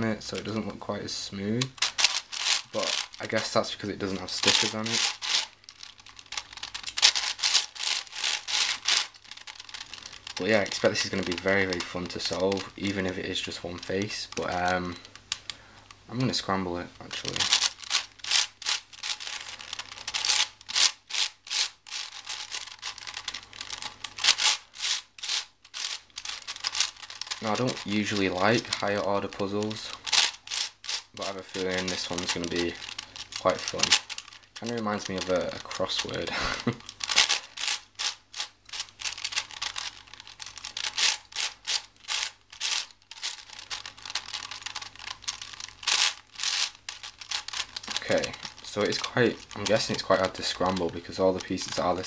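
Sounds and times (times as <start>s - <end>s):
plastic puzzle layers rasping: 0.0s - 52.0s.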